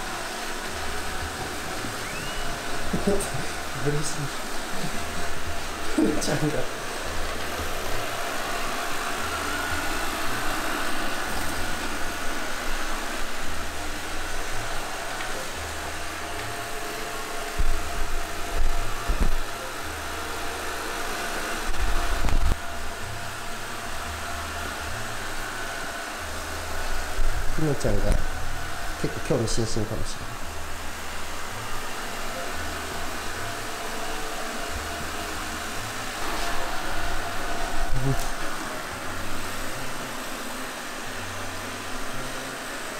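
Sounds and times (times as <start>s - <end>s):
robot vacuum whirring: 0.0s - 19.5s
robot vacuum fan whirring: 0.0s - 42.9s.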